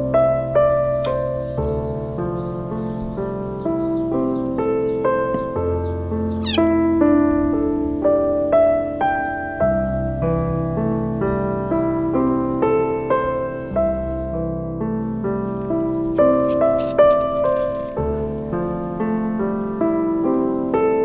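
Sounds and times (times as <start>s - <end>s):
piano music: 0.0s - 21.0s
kitten mewing: 6.4s - 6.8s.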